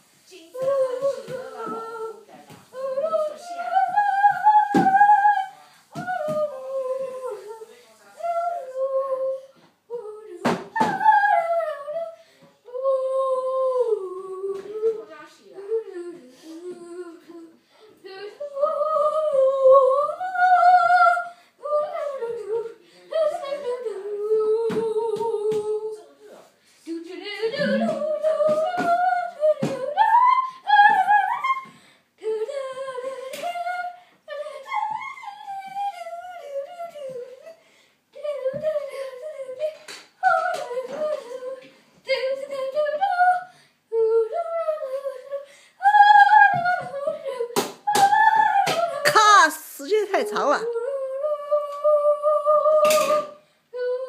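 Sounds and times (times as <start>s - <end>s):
high voice singing wordlessly: 0.1s - 26.2s, 26.9s - 54.0s
girl humming: 27.5s - 28.3s.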